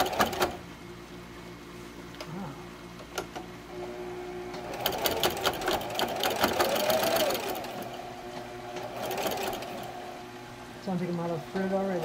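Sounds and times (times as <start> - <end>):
sewing machine motor whine: 3.7 - 10.3.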